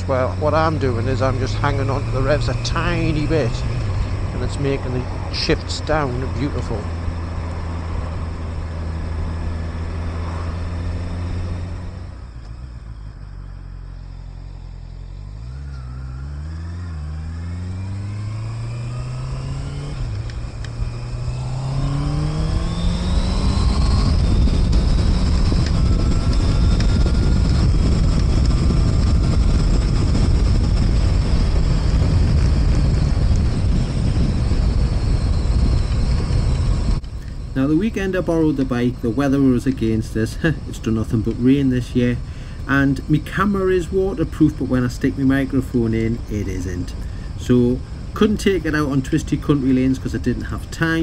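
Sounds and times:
motorcycle engine accelerating: 0.0 - 51.0
wind noise on microphone: 16.3 - 51.0.

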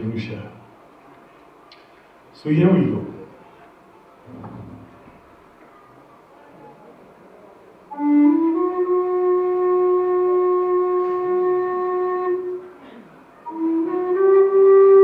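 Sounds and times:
flute playing held note: 7.9 - 15.0.

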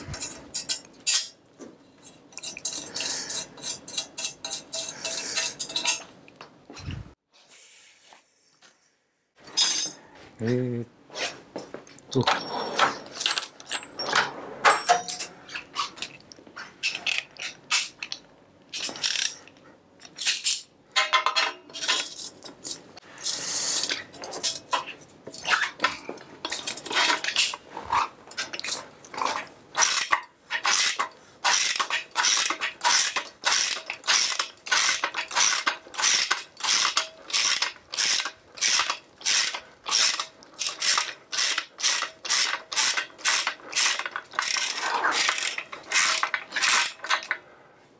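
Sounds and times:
tool clatter: 0.0 - 6.2, 12.2 - 16.2, 16.8 - 47.4
ratchet wrench clicking: 18.8 - 19.4, 29.8 - 47.1.

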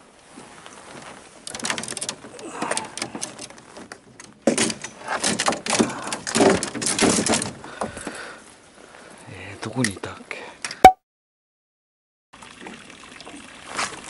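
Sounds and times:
fishing rods clacking: 1.4 - 7.5.

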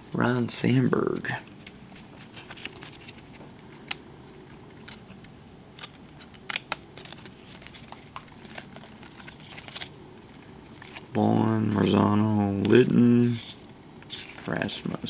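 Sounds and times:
cards flipped and snapping: 1.5 - 11.1.

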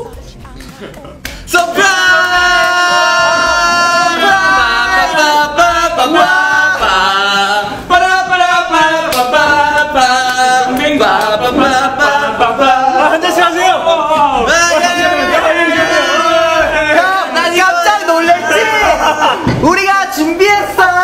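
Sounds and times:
men singing a cappella: 0.8 - 21.0
group shout: 1.5 - 9.7, 11.1 - 19.8.

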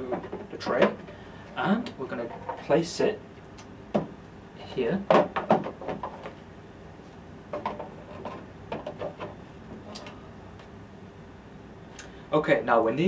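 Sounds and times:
plastic tray knocks and clicks: 5.1 - 6.1.

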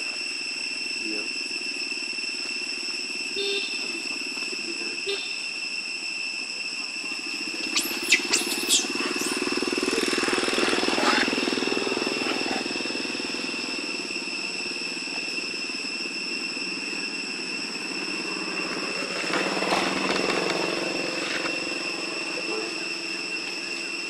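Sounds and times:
high-pitched buzzing drone: 0.0 - 24.0
low pulsing engine hum: 6.7 - 24.0
short sharp high squeals: 7.6 - 9.5.

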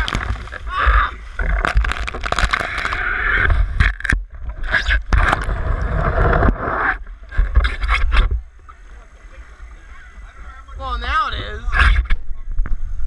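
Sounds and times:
water sloshing and splashing: 0.0 - 6.6
sharp clicks in water: 1.4 - 3.0.

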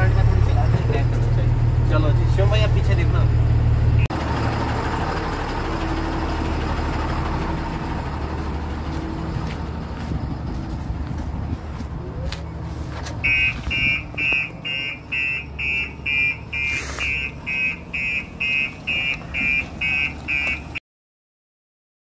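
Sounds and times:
truck engine rumbling: 0.0 - 20.8
reversing alarm beeping: 13.2 - 20.8.

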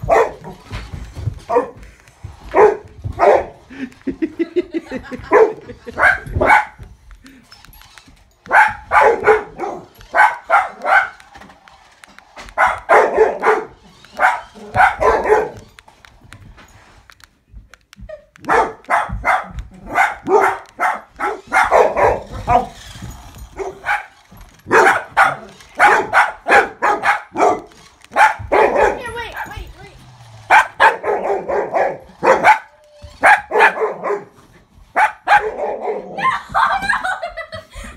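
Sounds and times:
dog barking: 0.0 - 0.5, 2.5 - 3.6, 5.3 - 6.8, 8.5 - 11.2, 12.6 - 15.6, 18.5 - 22.7, 24.7 - 29.0, 30.5 - 36.2.

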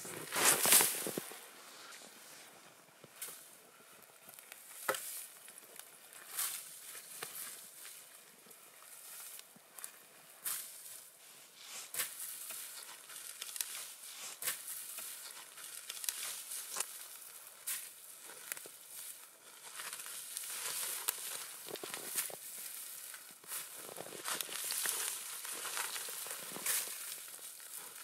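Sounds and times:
branches rustling and crackling: 0.0 - 28.0
twigs snapping: 12.0 - 28.0.

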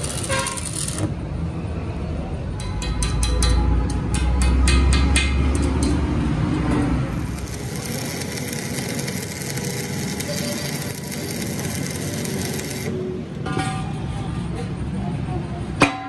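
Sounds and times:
welding arc crackling hiss: 0.0 - 1.1, 7.1 - 13.0.

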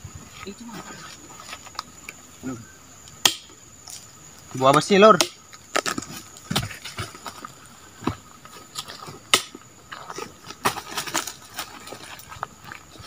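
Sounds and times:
fruit bunches dropped on ground: 5.7 - 7.4.

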